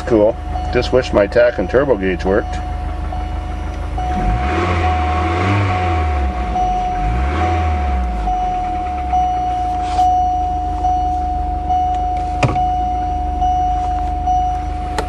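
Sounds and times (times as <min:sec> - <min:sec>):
car engine idling with whine: 0:00.0 - 0:15.0
gear selector click: 0:13.8 - 0:15.0.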